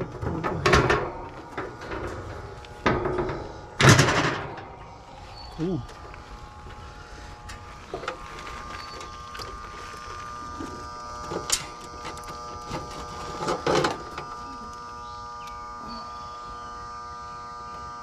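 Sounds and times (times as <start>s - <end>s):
steady multi-tone hum: 0.0s - 18.0s
wires clicking and rustling: 7.4s - 15.6s.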